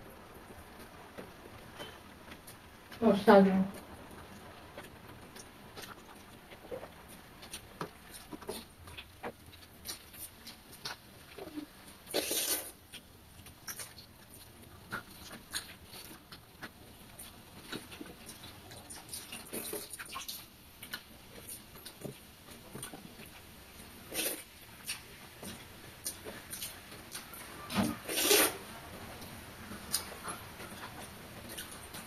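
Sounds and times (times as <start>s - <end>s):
mouth smacking and chewing: 3.8s - 23.4s.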